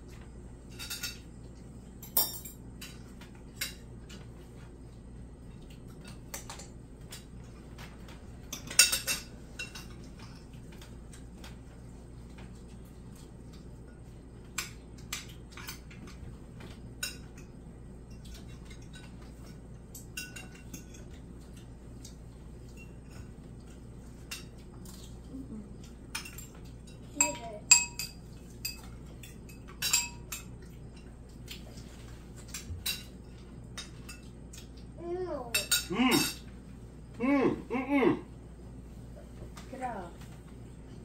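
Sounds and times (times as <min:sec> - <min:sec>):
cutlery clinking on plates: 0:00.7 - 0:01.3, 0:02.0 - 0:04.3, 0:08.4 - 0:11.6, 0:18.1 - 0:21.7, 0:26.1 - 0:31.2, 0:31.8 - 0:34.7, 0:35.5 - 0:36.6.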